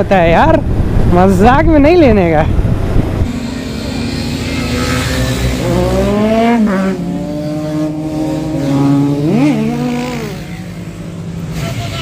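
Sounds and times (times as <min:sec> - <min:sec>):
motorcycle engine revving: 0:02.8 - 0:12.0.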